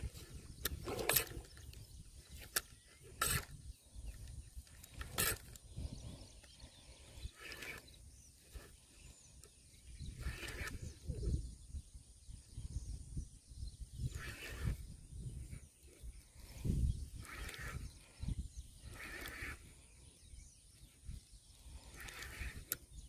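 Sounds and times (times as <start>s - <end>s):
fishing reel winding: 2.3s - 5.7s, 7.2s - 7.9s, 16.4s - 18.2s, 18.8s - 19.8s, 21.6s - 22.9s
sharp clicks: 21.9s - 22.9s.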